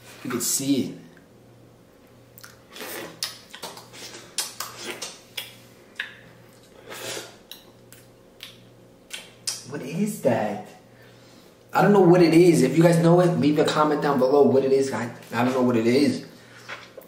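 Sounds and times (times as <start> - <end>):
man chewing food: 2.0 - 9.6.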